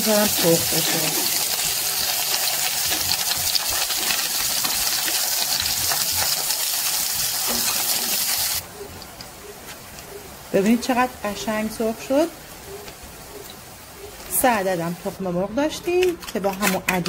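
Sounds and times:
slices frying in oil: 0.0s - 8.6s.

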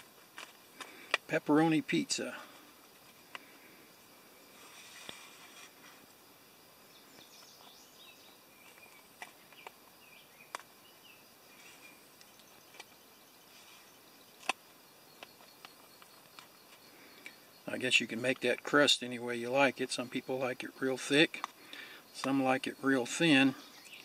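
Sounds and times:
faint bird chirps: 6.8s - 24.0s.

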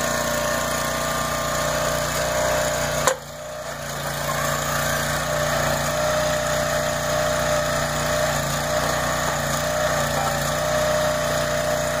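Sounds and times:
small gas engine running: 0.0s - 12.0s.

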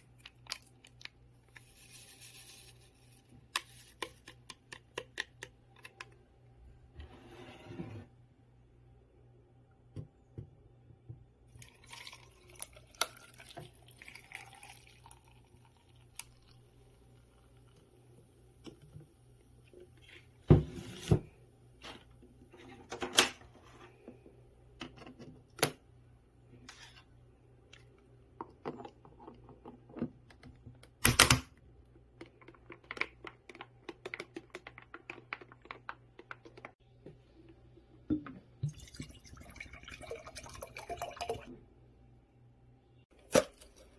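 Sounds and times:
liquid pouring into a glass jar: 11.5s - 17.9s, 38.6s - 41.5s.

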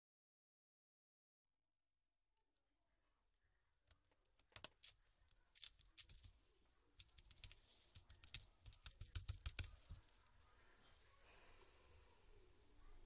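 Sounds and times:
plastic keyboard clicks and taps: 7.0s - 10.1s.

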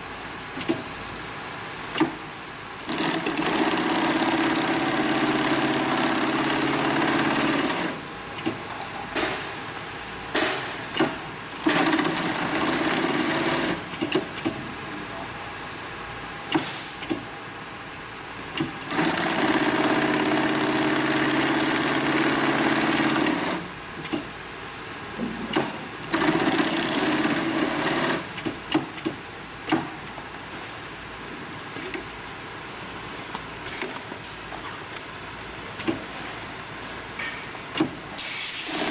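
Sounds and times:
sewing machine stitching: 2.8s - 8.6s, 11.6s - 14.5s, 18.6s - 24.2s, 26.0s - 28.6s.

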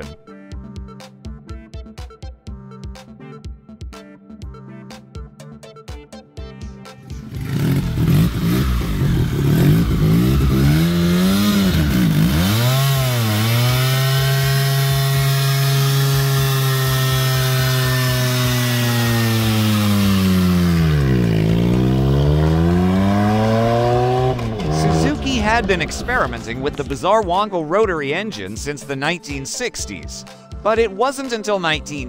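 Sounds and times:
rotary engine revving hard: 7.2s - 27.2s.

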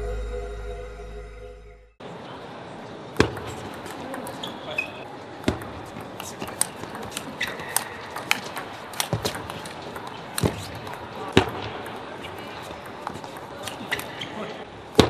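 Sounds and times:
intro music: 0.0s - 2.0s
table tennis ball clicks: 5.4s - 14.3s.

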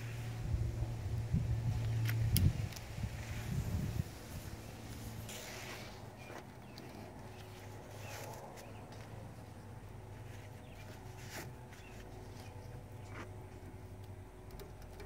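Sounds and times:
steady low hum: 0.0s - 15.0s
twine rustling and clicking: 10.2s - 15.0s.

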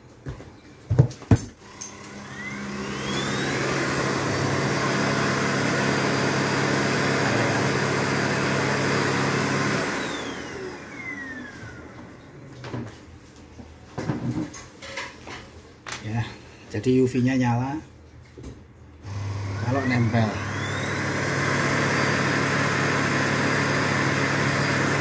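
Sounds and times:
vacuum cleaner motor whine: 1.6s - 12.4s, 19.0s - 25.0s.

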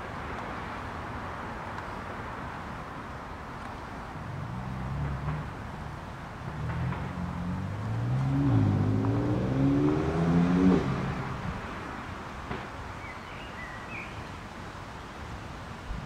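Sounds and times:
vehicle engine speeding up: 6.5s - 11.7s.

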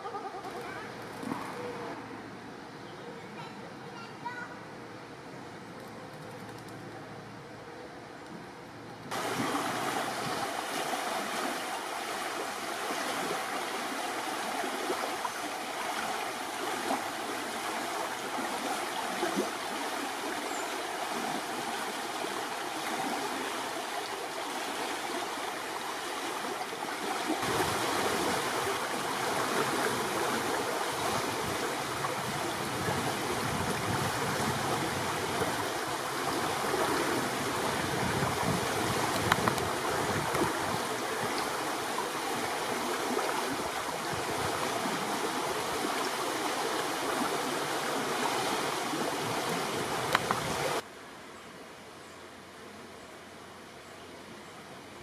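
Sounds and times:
river rushing over riffles: 9.1s - 50.9s.

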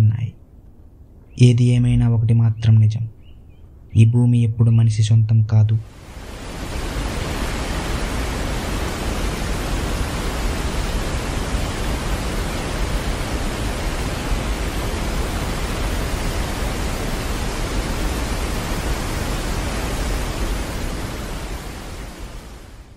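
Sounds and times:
waterfall rushing: 5.9s - 22.9s.

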